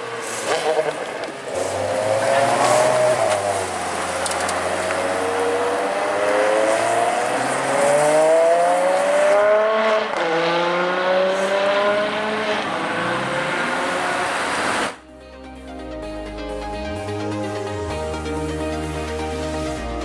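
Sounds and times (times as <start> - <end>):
sports car engine accelerating: 0.0 - 15.0.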